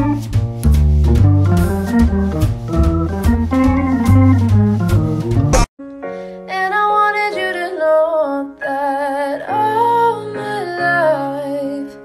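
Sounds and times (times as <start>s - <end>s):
sustained keyboard chords: 0.0s - 5.7s.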